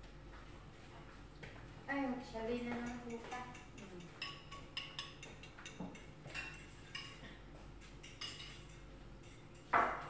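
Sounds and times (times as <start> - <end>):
spoon clinking against bowl: 2.7 - 10.0.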